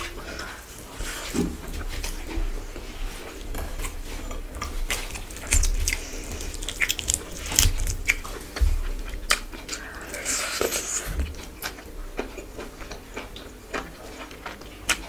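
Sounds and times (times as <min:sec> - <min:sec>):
chewing and wet mouth sounds: 0:00.0 - 0:15.0
fried chicken crackling and tearing: 0:03.8 - 0:08.5.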